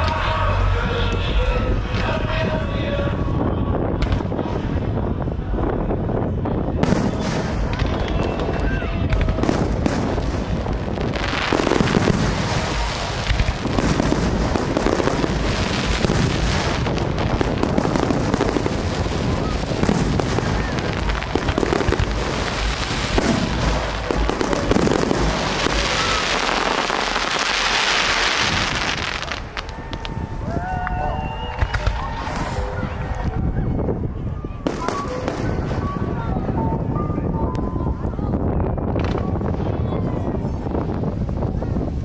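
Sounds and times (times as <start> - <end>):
fireworks bangs and crackling: 0.0 - 42.0
hissing crackle: 6.9 - 30.6.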